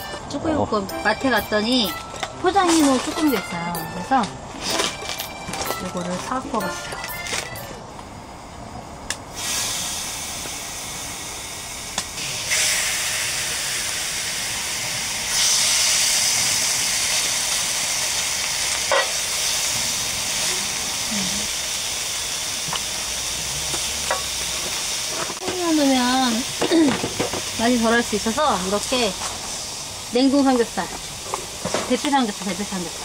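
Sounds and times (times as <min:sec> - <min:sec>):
octopus sizzling on griddle: 0:09.3 - 0:33.0.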